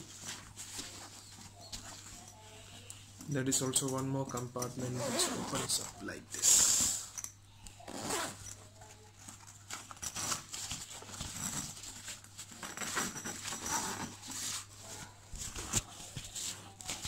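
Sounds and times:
backpack fabric rustling: 4.9 - 6.0, 7.9 - 8.5.

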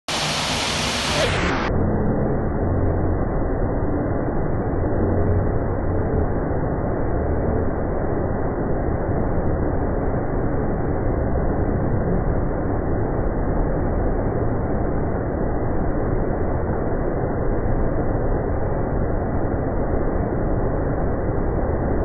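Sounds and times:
water rushing over weir: 0.1 - 2.7.

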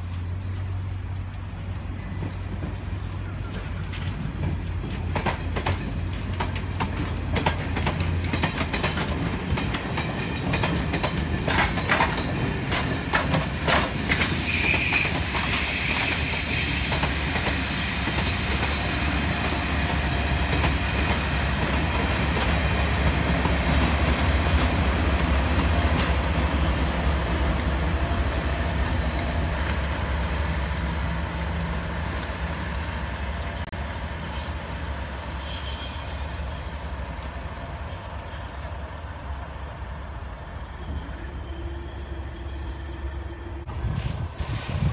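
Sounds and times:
diesel locomotive engine droning: 0.0 - 44.9
wheels clicking over rail joints: 0.1 - 14.4
high wheel squeal: 14.3 - 19.4, 20.1 - 25.4, 27.8 - 30.3, 35.0 - 43.7.

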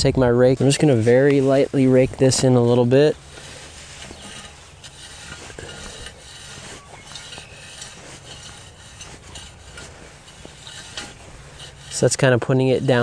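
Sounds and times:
rake tines scraping through dirt: 0.6 - 13.0.

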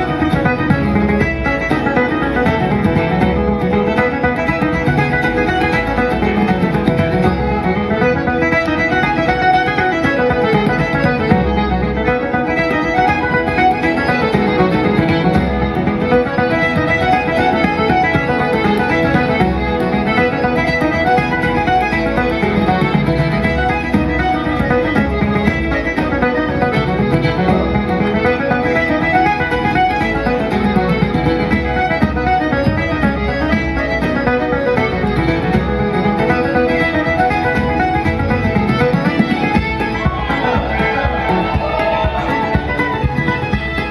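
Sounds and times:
accordion: 0.0 - 43.9
fiddle: 0.0 - 43.9
guitar: 0.0 - 43.9
tenor banjo: 0.0 - 43.9
frame drum rhythm: 38.8 - 43.9.

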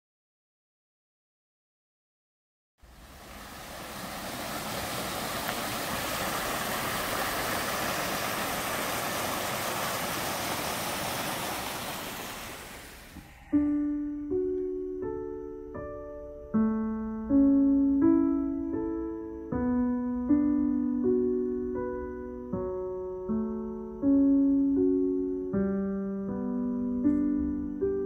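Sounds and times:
stream splashing over rocks: 2.9 - 13.2
slow digital piano melody: 12.7 - 28.0.

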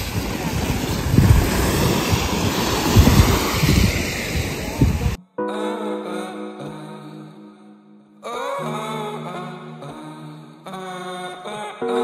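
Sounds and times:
small waves washing onto sand: 0.0 - 5.2
wind buffeting microphone: 0.0 - 5.2
music: 5.3 - 12.0.

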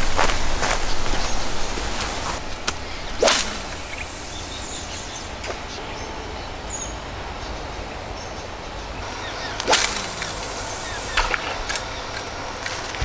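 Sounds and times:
low outdoor background: 0.0 - 13.0
fishing rod swishing: 2.4 - 5.4, 9.6 - 11.4
faint bird chirp: 2.8 - 12.2.

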